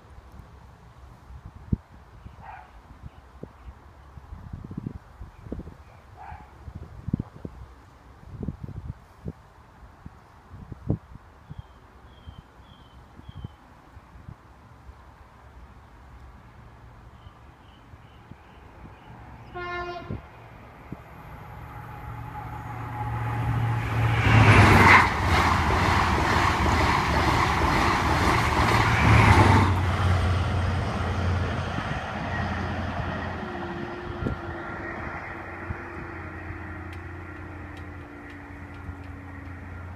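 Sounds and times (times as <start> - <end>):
train horn: 19.5 - 20.3, 21.5 - 24.9
crossing barriers whine: 20.1 - 39.9
train wheels rushing past: 20.9 - 39.9.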